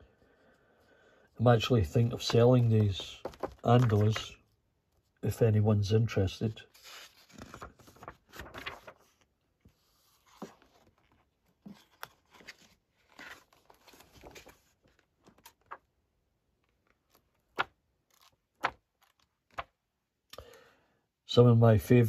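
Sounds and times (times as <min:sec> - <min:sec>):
book pages turning: 0:01.8 - 0:04.4, 0:06.7 - 0:15.9, 0:16.6 - 0:19.8.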